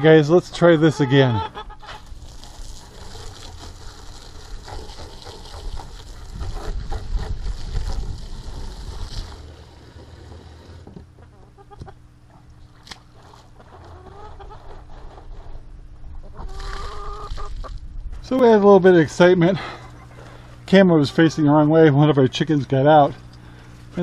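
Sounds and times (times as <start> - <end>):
chicken clucking: 0.5 - 2.0, 11.2 - 12.0, 13.6 - 15.2, 16.2 - 17.7, 19.7 - 21.7
water from hose splashing into jug: 2.0 - 10.8.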